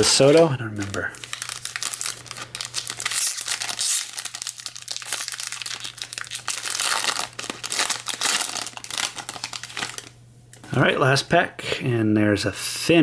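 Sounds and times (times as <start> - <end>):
foil wrapper crinkling and tearing: 0.0 - 10.2.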